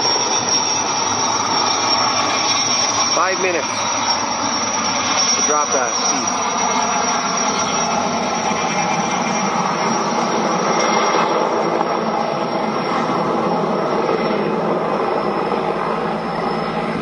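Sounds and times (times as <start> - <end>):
helicopter rotor and engine rush: 0.0 - 17.0
high turbine whine: 0.0 - 17.0.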